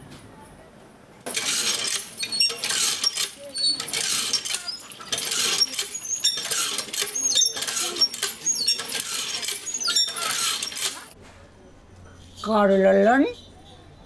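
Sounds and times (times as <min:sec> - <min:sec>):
metallic squeaks of pump handle: 0:01.3 - 0:11.2.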